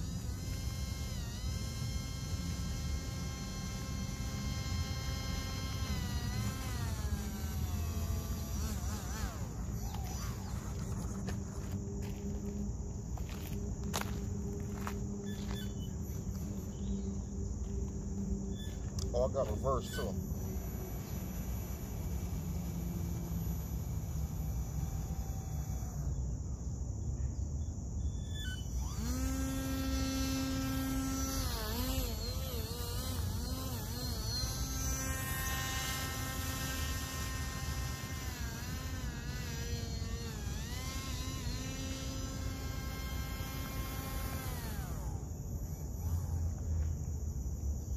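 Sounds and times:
model airboat motor whining: 0.0 - 11.8, 18.6 - 26.4, 28.3 - 46.4.

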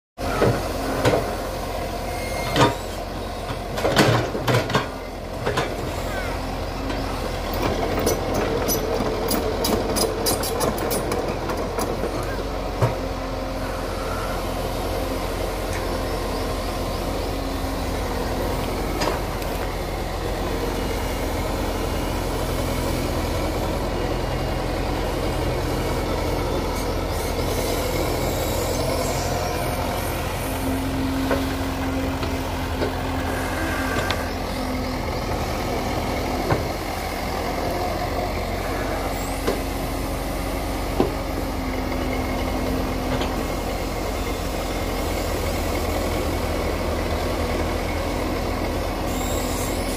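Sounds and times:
excavator diesel engine running: 0.2 - 49.9
pitched whine: 26.5 - 35.5.

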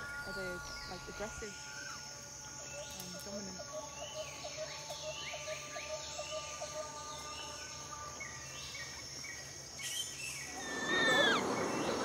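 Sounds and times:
insect hum: 0.0 - 12.0
bird chirps: 3.8 - 12.0
high falling bird calls: 8.2 - 12.0.

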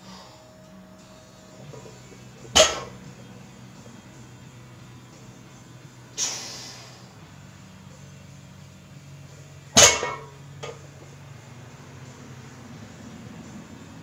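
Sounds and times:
barbell plates clanking down: 2.5 - 3.0, 9.8 - 10.3.

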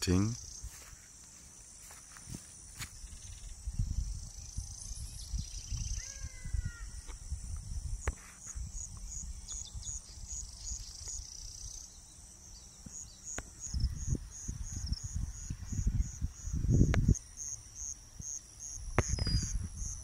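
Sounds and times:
insects buzzing: 0.0 - 20.0
wind rumble on microphone: 2.2 - 11.9, 13.4 - 17.4, 18.1 - 20.0.

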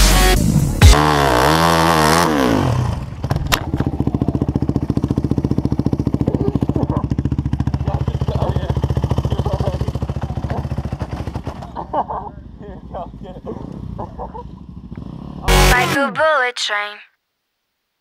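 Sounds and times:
motorcycle engine revving: 0.0 - 16.0
motorcycle engine idling: 2.8 - 15.8.

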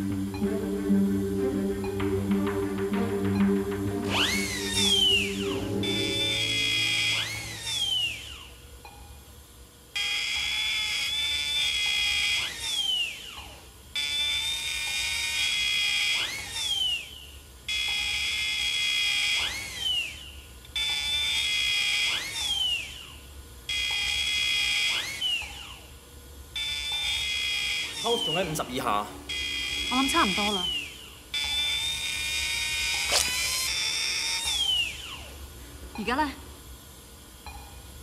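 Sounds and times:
power drill whining: 4.1 - 5.2, 6.8 - 8.5, 10.0 - 13.4, 14.0 - 17.2, 18.4 - 23.1, 23.7 - 25.8, 26.6 - 28.4, 29.4 - 35.2.

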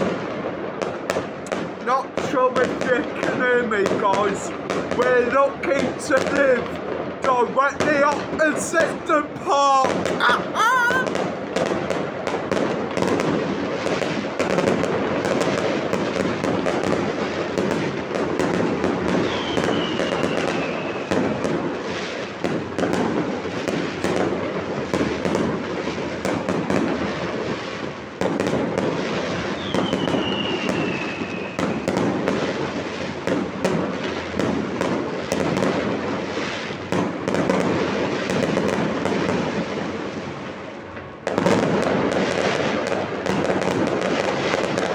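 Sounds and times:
fireworks bangs and crackles: 0.0 - 44.9
falling firework whistles: 19.0 - 22.2, 29.2 - 32.1.

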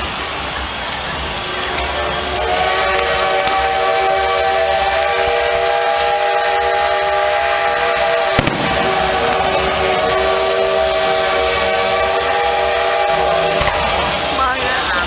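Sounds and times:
firework bang: 8.4 - 10.1
low rumble: 8.4 - 10.7.

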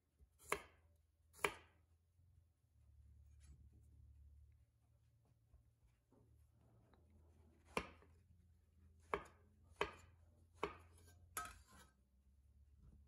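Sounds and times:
knife striking cutting board: 0.4 - 0.8, 9.0 - 11.8.

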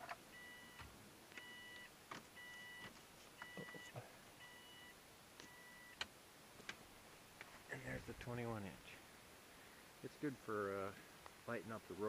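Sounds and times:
car warning chime beeping: 0.3 - 6.0.

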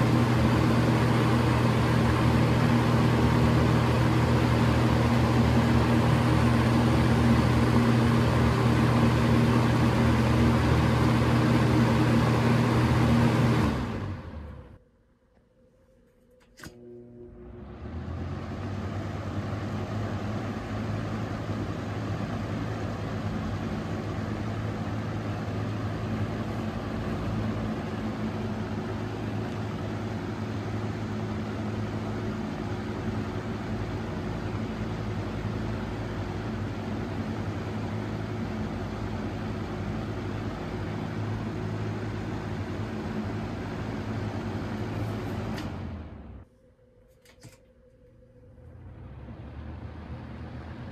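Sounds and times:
fan motor hum: 0.0 - 50.9
rush of air from fan: 17.5 - 46.4.

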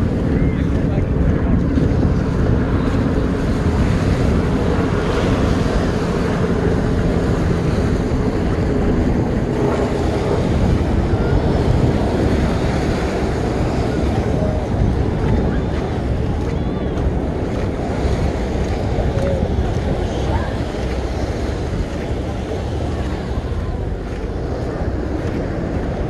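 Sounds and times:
wind rumbling on microphone: 0.0 - 26.0.

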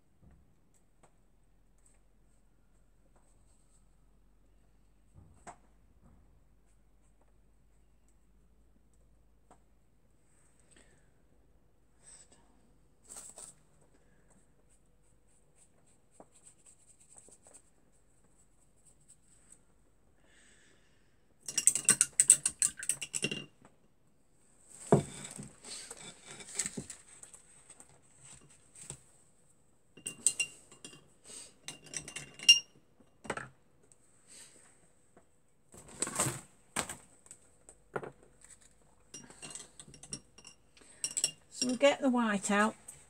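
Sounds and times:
art supplies clinking on a table: 21.4 - 23.8, 24.8 - 29.0, 30.0 - 33.6, 37.7 - 41.8.

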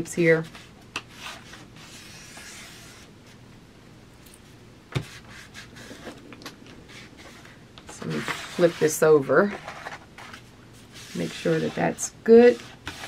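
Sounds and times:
hands rubbing over paper: 5.0 - 13.0.

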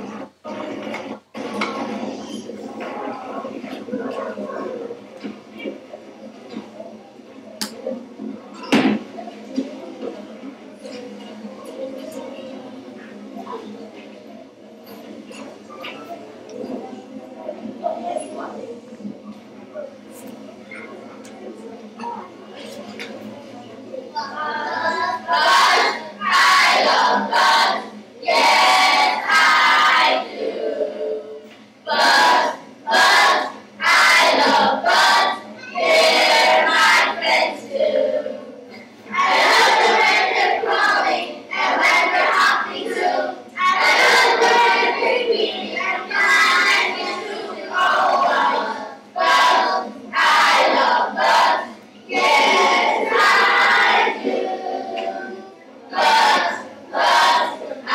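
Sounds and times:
quieter voices: 0.0 - 57.9
group of voices chanting: 39.2 - 57.9.

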